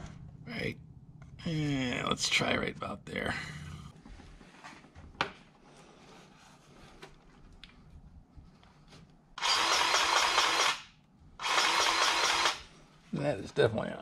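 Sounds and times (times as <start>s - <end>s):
quiet handling: 2.3s - 9.4s
battery grease gun running: 9.4s - 12.7s.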